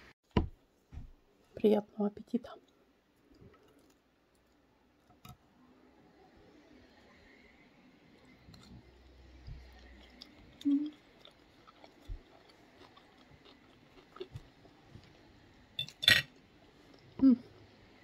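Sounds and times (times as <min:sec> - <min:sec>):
person chewing: 0:08.4 - 0:15.3.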